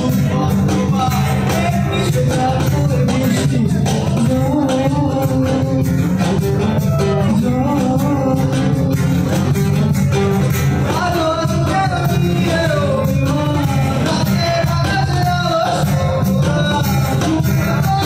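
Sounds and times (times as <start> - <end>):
acoustic guitars: 0.0 - 18.0
bass guitar: 0.0 - 18.0
cajon: 0.0 - 18.0
man singing: 0.0 - 18.0.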